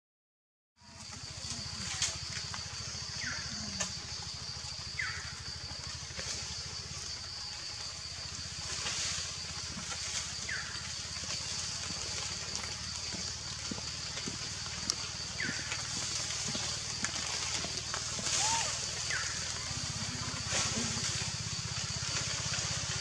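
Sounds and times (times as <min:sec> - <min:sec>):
high-pitched hiss: 0:04.7 - 0:23.0.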